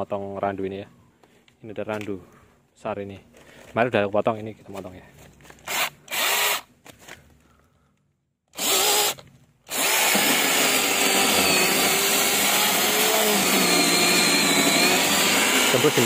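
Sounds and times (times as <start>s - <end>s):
mini chainsaw whirring: 5.6s - 6.7s, 8.5s - 16.0s.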